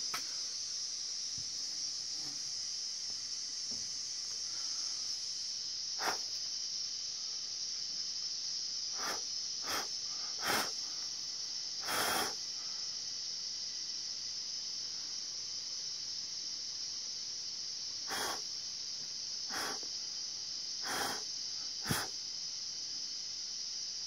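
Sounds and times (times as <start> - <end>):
high-pitched insect chorus: 0.0 - 24.0
short puffs of noise: 6.0 - 6.3, 9.0 - 10.8, 11.8 - 12.4, 18.1 - 18.4, 19.5 - 19.9, 20.8 - 22.2.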